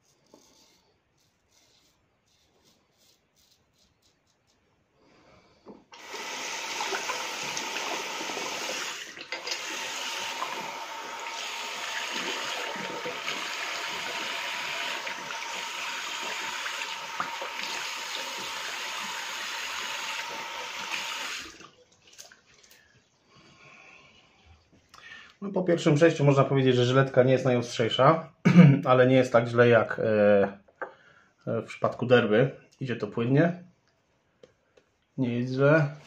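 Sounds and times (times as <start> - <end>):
tap water running into sink: 6.0 - 22.8.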